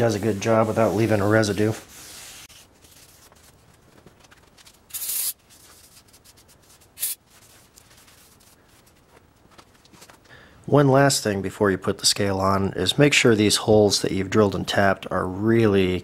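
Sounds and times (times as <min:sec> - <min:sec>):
rag wiping: 0:00.0 - 0:03.1
aerosol spray hiss: 0:04.9 - 0:05.4, 0:07.0 - 0:07.2.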